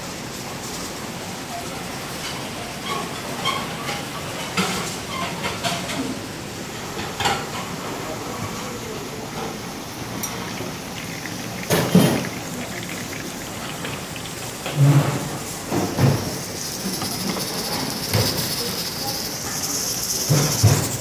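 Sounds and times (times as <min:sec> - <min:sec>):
steady kitchen hiss: 0:00.0 - 0:21.0
pans clattering on steel counters: 0:02.2 - 0:06.2, 0:10.2 - 0:19.2
faint voices: 0:07.5 - 0:21.0.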